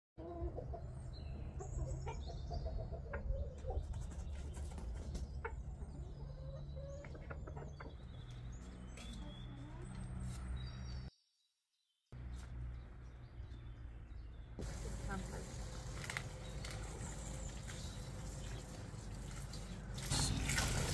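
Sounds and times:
chickens clucking: 0.2s - 10.0s.

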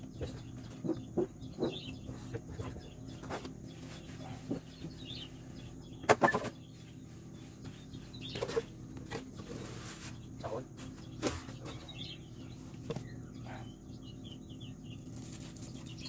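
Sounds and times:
birds calling faintly: 0.0s - 16.0s
rustle of worms spread by hand: 9.4s - 11.5s.

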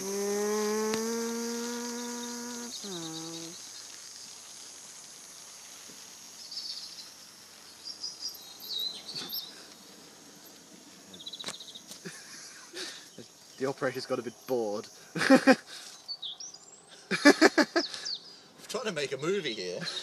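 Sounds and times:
faint high bird chirps: 1.1s - 4.4s, 6.4s - 9.7s, 15.9s - 17.0s, 17.6s - 18.4s.

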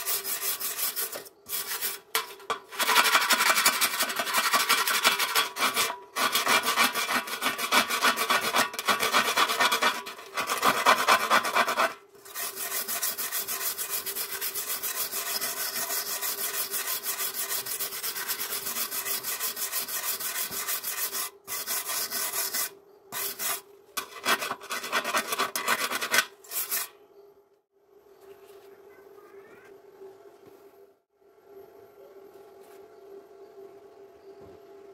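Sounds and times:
wire brush scrubbing metal: 0.0s - 27.0s.

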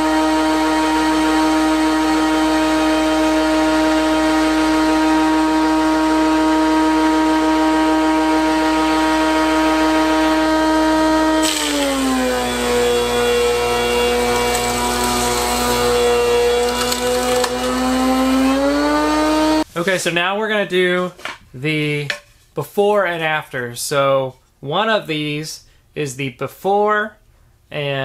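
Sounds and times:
thickness planer whining: 0.0s - 19.7s
hiss of cutting wood: 11.3s - 19.6s.

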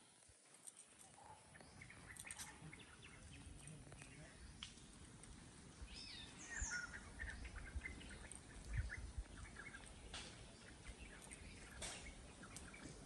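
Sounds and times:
birds chirping and calling: 0.6s - 13.0s
wind rumble on microphone: 2.9s - 13.0s.

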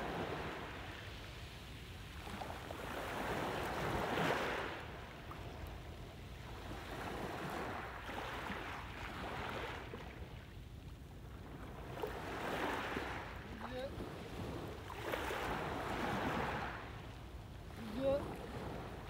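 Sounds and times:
waves washing on pebble beach: 12.1s - 16.9s.

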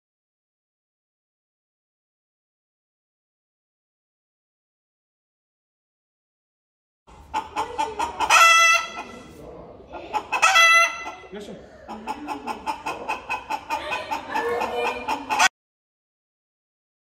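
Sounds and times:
chickens clucking: 7.1s - 15.5s.

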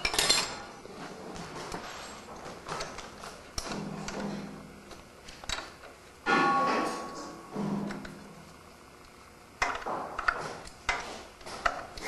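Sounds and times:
ringing metal clank: 6.3s - 7.8s.

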